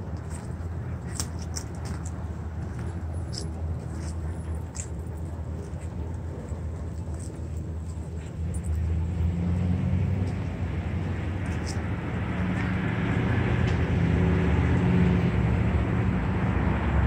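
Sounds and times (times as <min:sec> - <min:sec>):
light crunches and clicks: 0:00.1 - 0:08.8.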